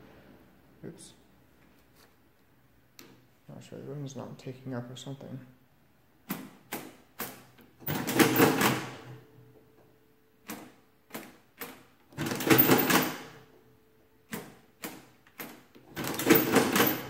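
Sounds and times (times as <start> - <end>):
adding machine mechanism clattering: 6.3 - 9.2, 12.1 - 13.4, 14.3 - 17.0.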